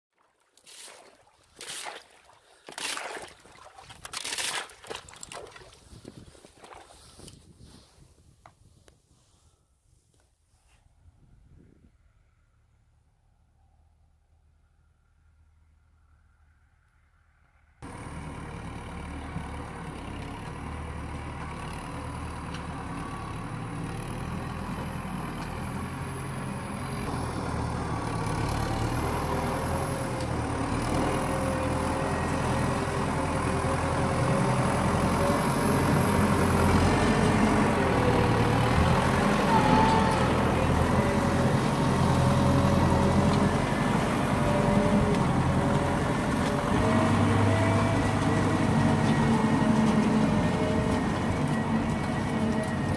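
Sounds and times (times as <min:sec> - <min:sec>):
tractor diesel engine under load: 0:17.8 - 0:52.9.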